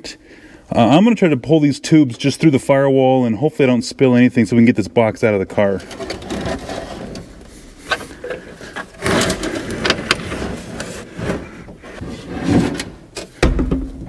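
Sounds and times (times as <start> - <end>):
housing scraping and rustling: 5.7 - 13.2.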